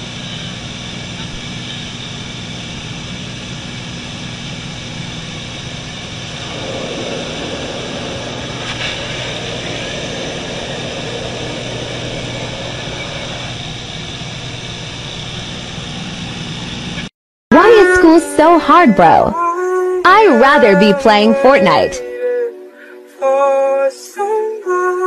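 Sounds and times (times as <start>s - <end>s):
rushing noise: 0.0s - 19.3s
propeller engine droning: 0.0s - 23.5s.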